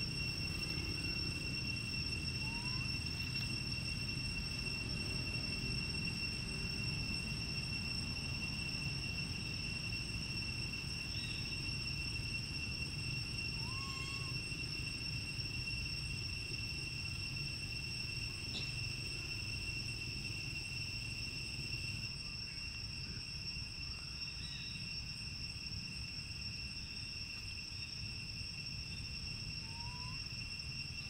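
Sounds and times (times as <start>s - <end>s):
insects droning: 0.0s - 31.0s.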